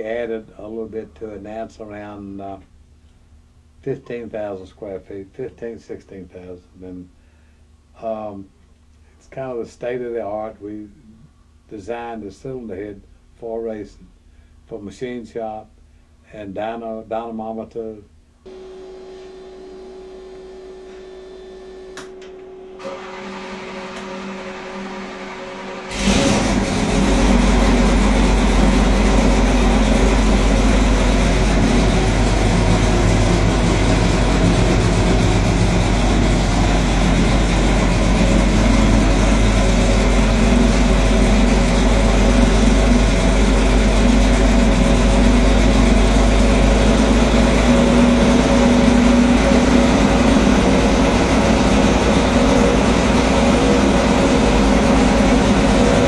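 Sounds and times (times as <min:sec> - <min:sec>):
racing engine running steadily: 0:18.5 - 0:56.0.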